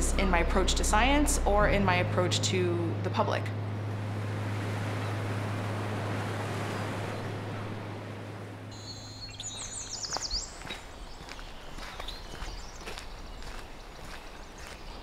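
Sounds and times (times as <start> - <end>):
low hum: 0.0 - 10.6
small birds chirping: 8.7 - 15.0.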